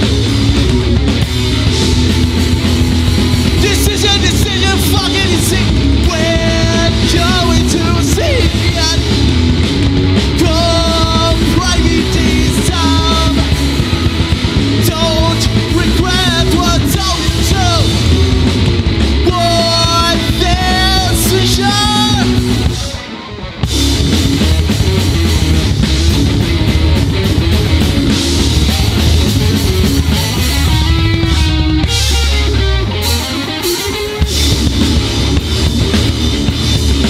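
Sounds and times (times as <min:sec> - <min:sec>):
live punk rock band playing: 0:00.0 - 0:37.0.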